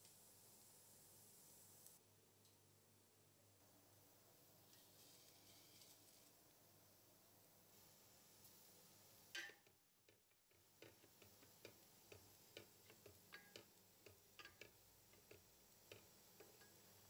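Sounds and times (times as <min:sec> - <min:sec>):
low hiss of boiling water: 0:00.0 - 0:17.0
wooden spatula knocking pot: 0:09.4 - 0:17.0.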